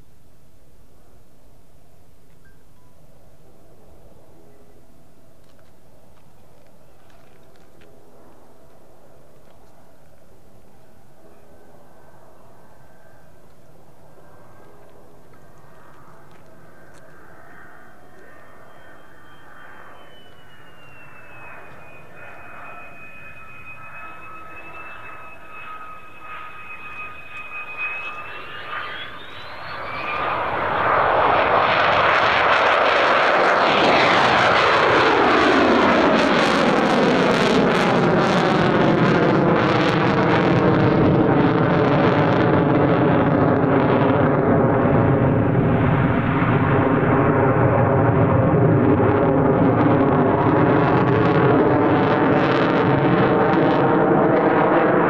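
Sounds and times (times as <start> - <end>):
high jet whine: 0.0 - 55.0
loud jet roar: 11.1 - 55.0.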